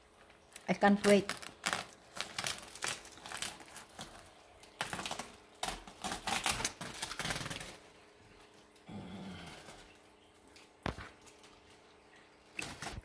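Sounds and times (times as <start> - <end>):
plastic crinkling: 0.1 - 8.8
scissors snipping plastic: 0.6 - 7.8.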